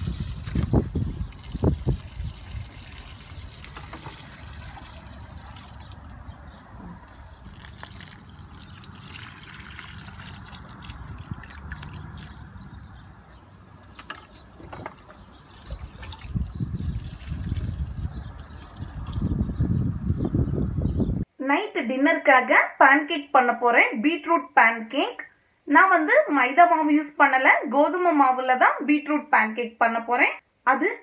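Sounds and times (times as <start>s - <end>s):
water trickling onto soil: 0.0s - 13.0s, 13.8s - 19.2s.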